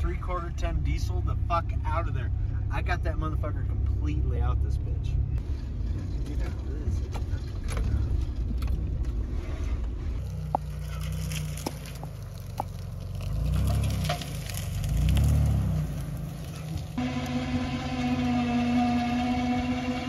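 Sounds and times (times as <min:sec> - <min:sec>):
pickup truck engine: 0:00.0 - 0:20.0
brush snapping under tyres: 0:10.2 - 0:17.0.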